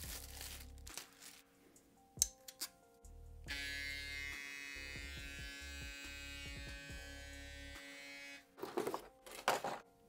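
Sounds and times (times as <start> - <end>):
hair clipper buzzing: 3.5 - 8.4.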